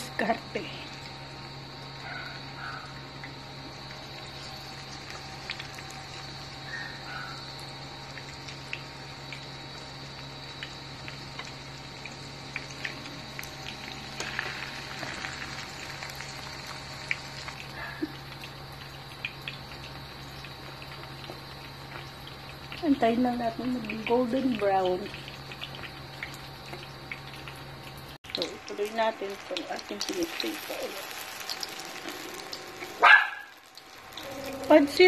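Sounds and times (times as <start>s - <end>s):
food sizzling in oil: 0.0s - 35.0s
hotplate electrical hum: 0.0s - 35.0s.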